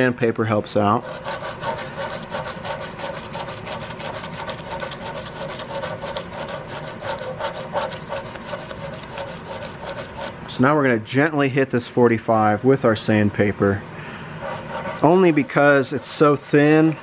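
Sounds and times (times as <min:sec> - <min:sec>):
sandpaper rasping on steel: 0:00.8 - 0:10.4, 0:14.4 - 0:17.0.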